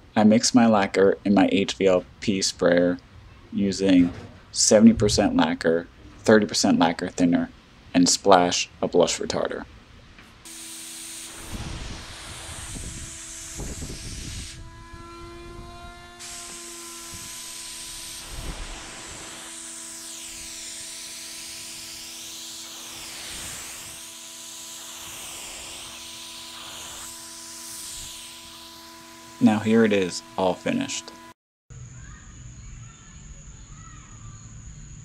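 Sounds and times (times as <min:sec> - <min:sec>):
steady whine: 0:04.0 - 0:05.9, 0:10.4 - 0:31.4
spray gun hissing: 0:10.5 - 0:14.7, 0:15.3 - 0:31.4.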